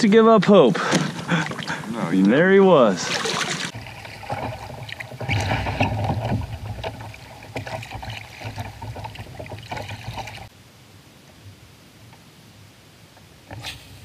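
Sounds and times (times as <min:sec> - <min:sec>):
paddle strokes splashing water: 0:00.8 - 0:10.5.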